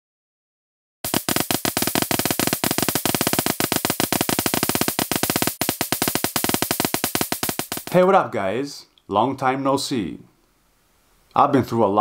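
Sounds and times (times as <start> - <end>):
electric arc crackling: 1.1 - 8.1
steady hum: 1.1 - 8.1.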